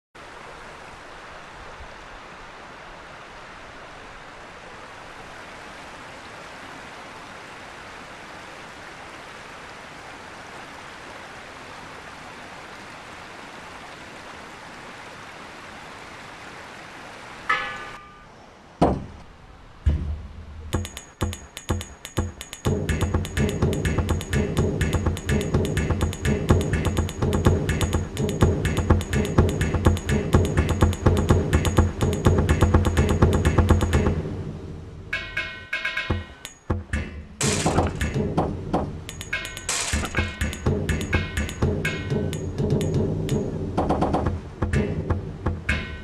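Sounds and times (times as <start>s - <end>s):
river water rushing over falls: 0.2s - 18.0s.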